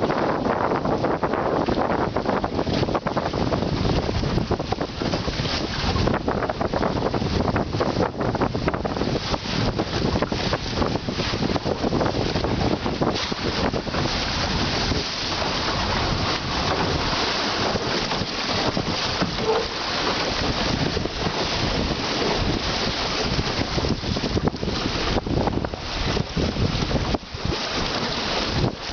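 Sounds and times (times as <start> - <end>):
choppy water slapping hull: 0.0 - 28.9
wind blowing across microphone: 0.0 - 28.9.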